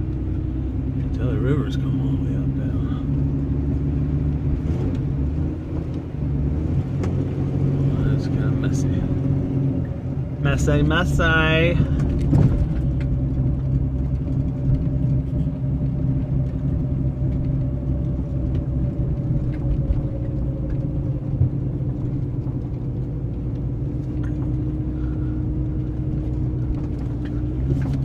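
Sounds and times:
car engine running at low speed: 0.0 - 28.0.

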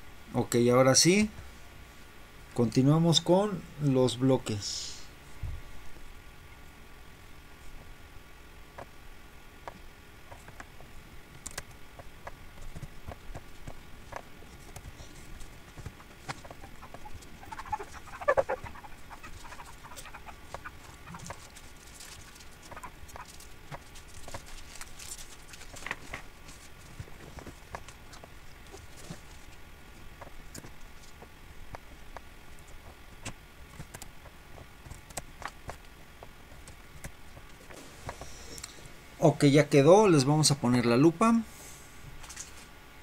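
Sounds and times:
computer mouse clicking: 11.4 - 14.9
squeaky chirping: 16.0 - 21.5.

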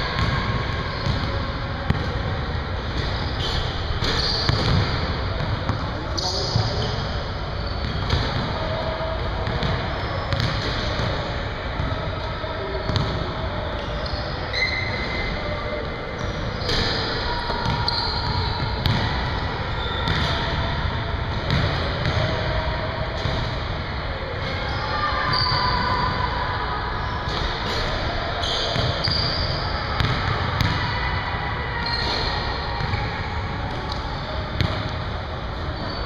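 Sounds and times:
ball hitting basketball rim: 4.0 - 5.0, 9.4 - 11.1, 21.4 - 22.2
basketballs bouncing on wooden floor: 9.4 - 11.1, 21.5 - 22.2, 30.0 - 30.8.

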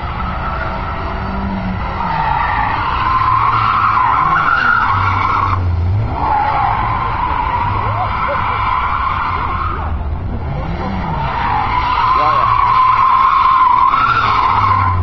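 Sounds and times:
car engine running hard: 0.0 - 15.0
tyres squealing: 0.0 - 15.0.

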